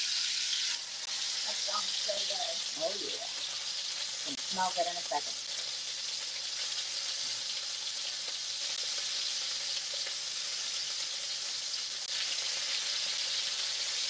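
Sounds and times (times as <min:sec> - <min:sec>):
meat sizzling in oil: 0:00.0 - 0:14.0.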